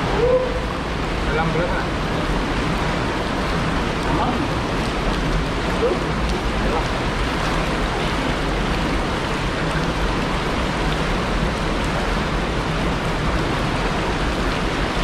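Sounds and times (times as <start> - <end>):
river water rushing over rocks: 0.0 - 15.0.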